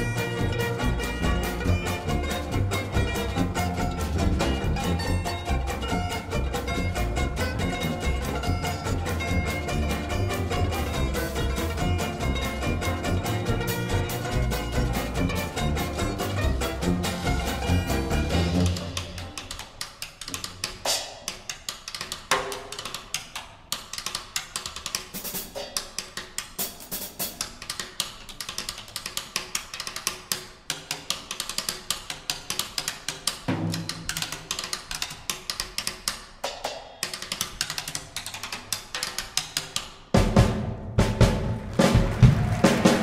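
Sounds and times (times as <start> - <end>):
drum solo with sticks: 0.0 - 19.6, 20.8 - 21.6, 25.1 - 27.5, 33.4 - 34.7, 40.1 - 43.0
full band playing: 0.0 - 19.7, 33.4 - 34.4, 40.1 - 43.0.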